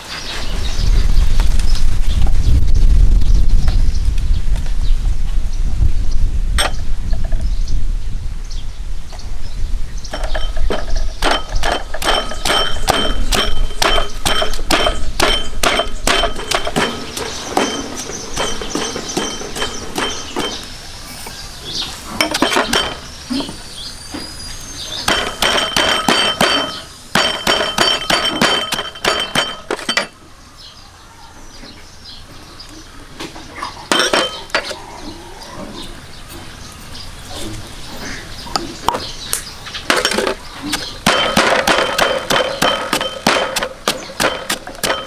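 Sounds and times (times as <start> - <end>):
rapid metallic clinking: 10.1 - 20.6, 25.1 - 30.1.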